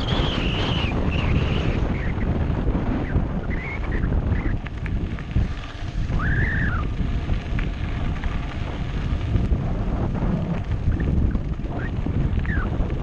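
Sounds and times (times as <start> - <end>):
bike rattling clicks: 0.0 - 13.0
low rumble: 0.0 - 13.0
wind buffeting microphone: 0.0 - 13.0
high squeals: 6.1 - 6.9.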